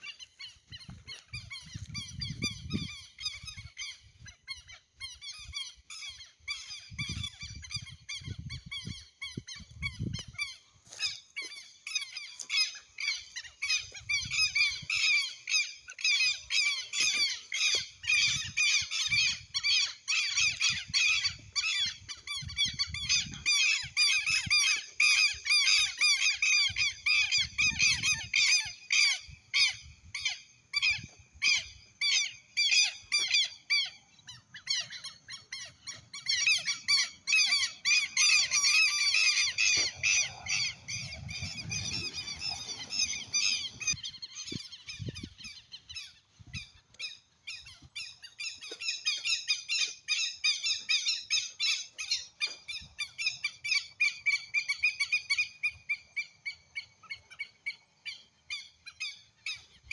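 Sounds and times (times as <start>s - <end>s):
flock of birds chirping: 0.0s - 59.9s
low rumbles on microphone: 39.8s - 44.0s.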